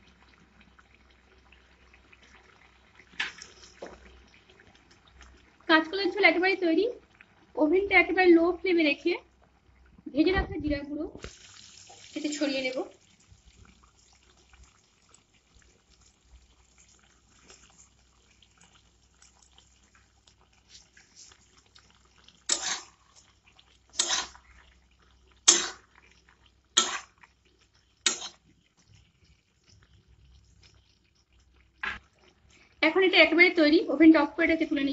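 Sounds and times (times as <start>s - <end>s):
spatula scraping metal pot: 22.5s - 23.3s, 23.9s - 24.6s, 25.5s - 25.9s, 26.8s - 27.2s, 28.0s - 28.5s.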